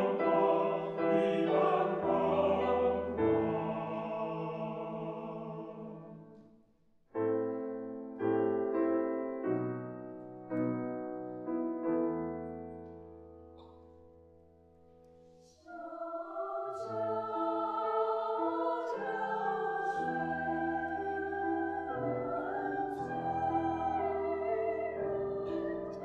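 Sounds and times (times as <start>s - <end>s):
choir singing: 0.0s - 6.4s, 15.4s - 26.0s
piano chords: 7.2s - 14.7s, 16.8s - 26.0s.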